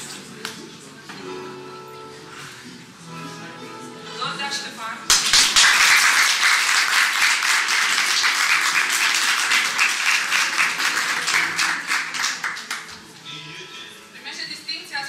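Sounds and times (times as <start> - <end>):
people applauding: 5.1 - 13.1.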